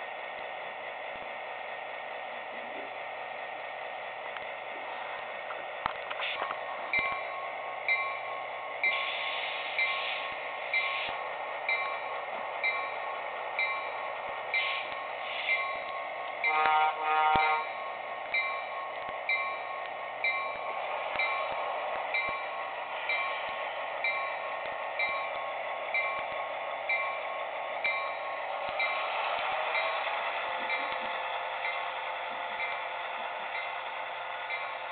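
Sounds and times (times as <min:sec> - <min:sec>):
model train running noise: 0:00.0 - 0:34.9
model train bell ringing: 0:06.4 - 0:34.9
train horn blast: 0:16.4 - 0:17.8.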